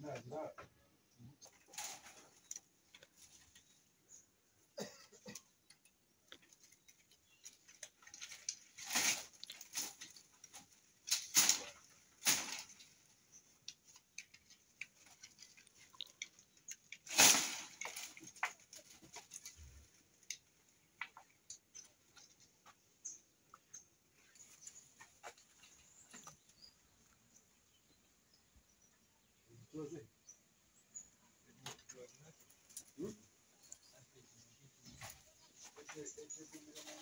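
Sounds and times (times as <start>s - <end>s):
dry leaves rustling and crackling: 6.6s - 20.4s.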